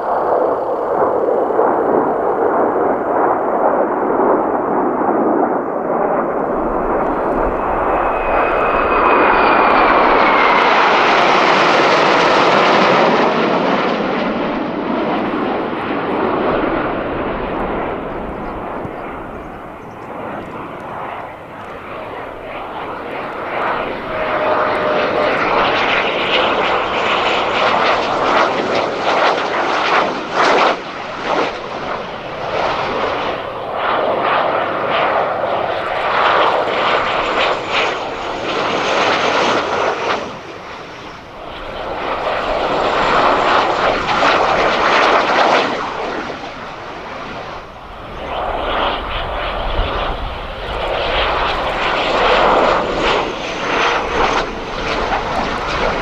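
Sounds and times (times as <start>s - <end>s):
jet engines passing low: 0.0s - 56.0s.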